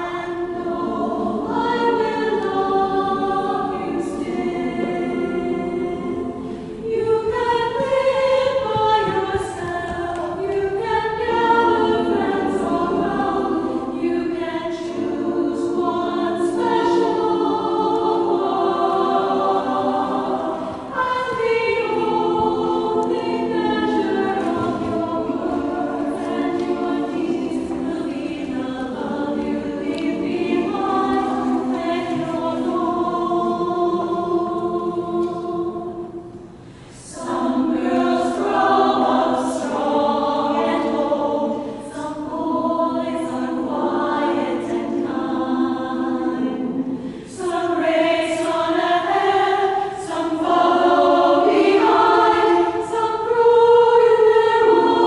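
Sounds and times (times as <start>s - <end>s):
women's chorus singing: 0.0s - 55.0s
singers breathing: 6.4s - 6.9s, 36.4s - 37.1s, 46.9s - 47.4s.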